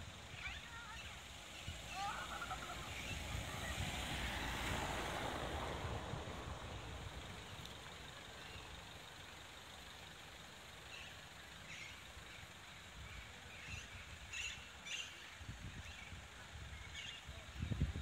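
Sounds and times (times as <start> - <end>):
outdoor hush: 0.0 - 17.6
faint bird chirps: 0.3 - 3.6.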